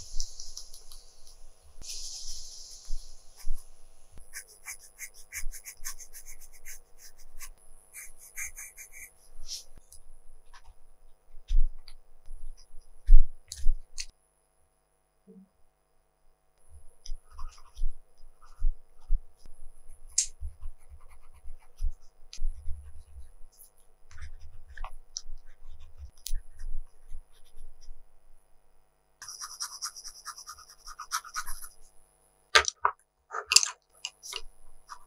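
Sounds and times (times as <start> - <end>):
pencil scratching on paper: 0.0 - 9.8, 17.1 - 27.9, 29.2 - 31.9
pencil taps and clicks: 32.6 - 34.5.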